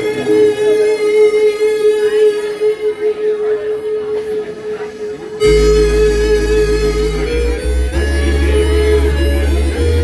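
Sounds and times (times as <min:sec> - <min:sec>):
faint higher synth notes: 0:02.6 - 0:10.0
sustained synthesizer note: 0:05.4 - 0:10.0.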